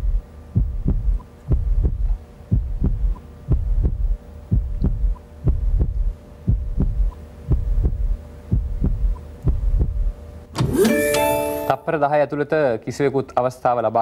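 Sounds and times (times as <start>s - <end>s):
heartbeat-like double thump: 0.0s - 10.8s
faint steady hum: 0.0s - 14.0s.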